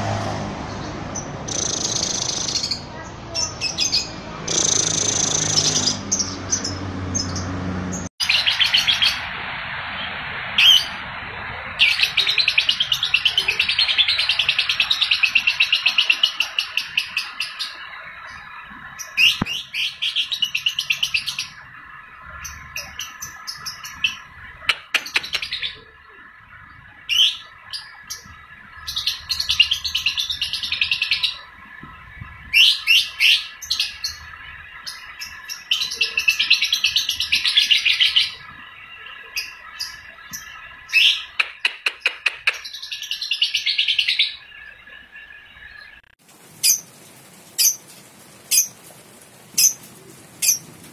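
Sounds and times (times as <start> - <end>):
bird sharp chirps: 0.7 - 9.3.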